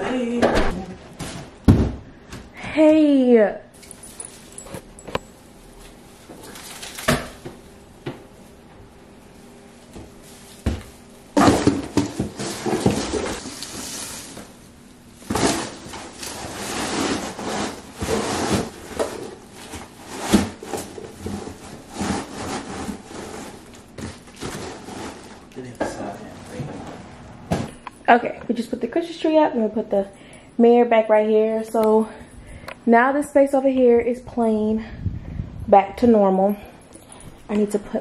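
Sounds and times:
artificial tree branches rustling: 12.4 - 25.7.

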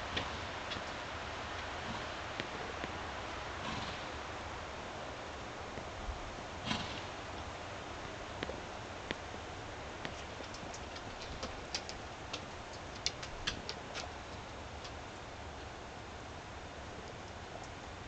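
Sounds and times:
sharp clicks and ticks: 10.0 - 15.0.

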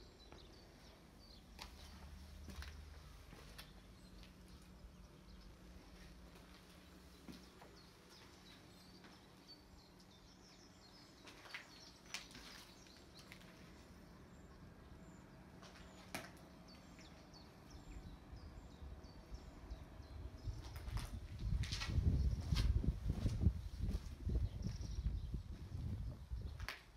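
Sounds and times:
small birds chirping: 0.0 - 26.9
footsteps crunching on glass: 1.6 - 4.4, 11.2 - 13.8.

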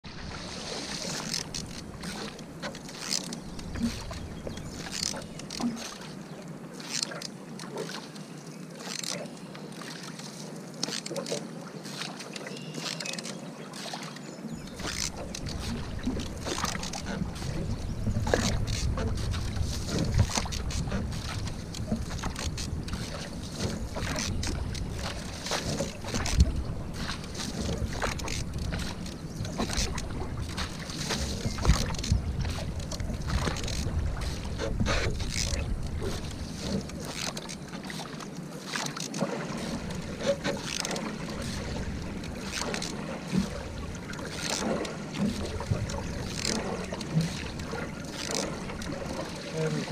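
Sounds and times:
paddle splashing in water: 0.0 - 49.9
water moving along hull: 0.0 - 49.9
wind rumble on microphone: 14.6 - 37.1, 45.2 - 47.8.

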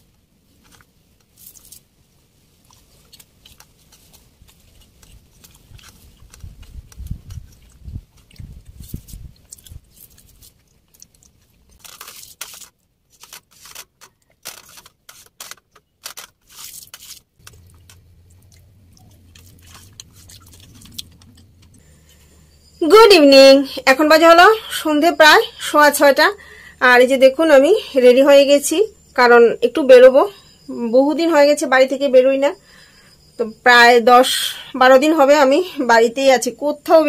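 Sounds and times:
soft chewing: 2.5 - 14.4, 16.6 - 22.6
faint low steady hum: 17.4 - 37.0.

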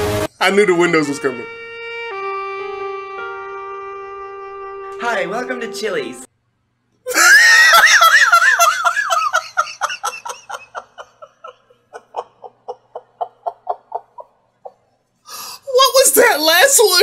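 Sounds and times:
man laughing hard: 7.1 - 14.8.

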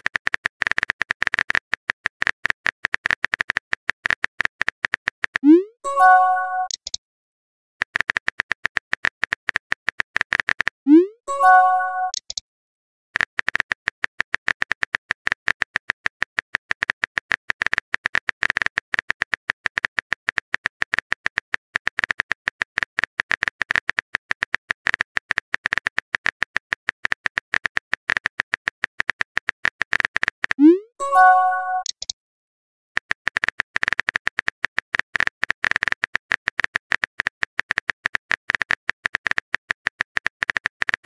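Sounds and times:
keyboard typing sound effect: 0.2 - 7.0, 10.2 - 12.4, 27.0 - 32.2.

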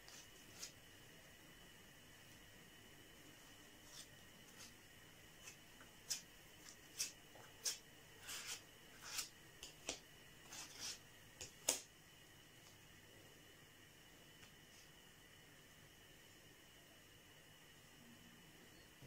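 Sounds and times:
fingers rubbing putty on cardboard: 6.9 - 9.3, 10.5 - 11.0.

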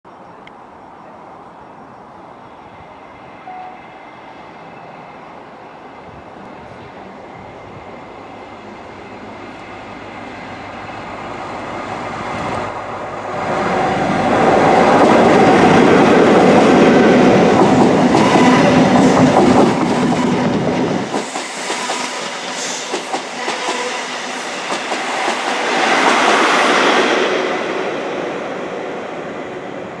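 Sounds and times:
train wheels clattering: 14.6 - 27.2.

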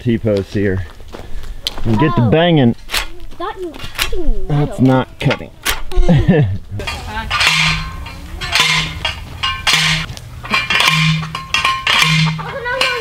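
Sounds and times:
post driver clanking on metal post: 6.8 - 13.0.

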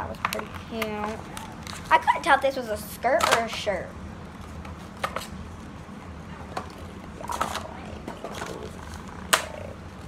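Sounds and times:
low steady hum: 0.0 - 10.0.

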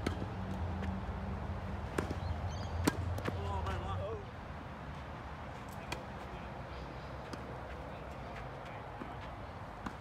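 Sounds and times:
tennis ball hit by racket: 1.9 - 2.2.

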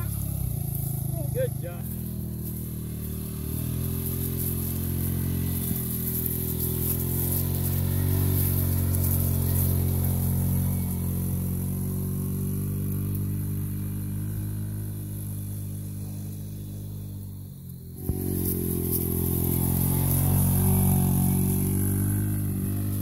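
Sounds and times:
small engine droning: 0.0 - 23.0.

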